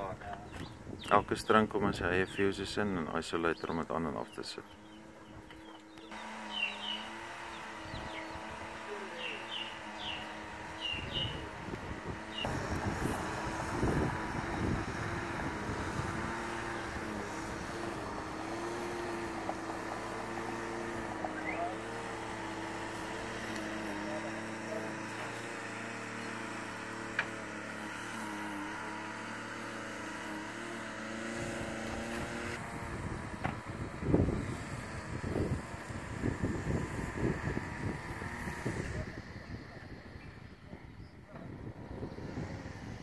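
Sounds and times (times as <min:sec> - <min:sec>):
steady mechanical hum: 0:04.2 - 0:43.0.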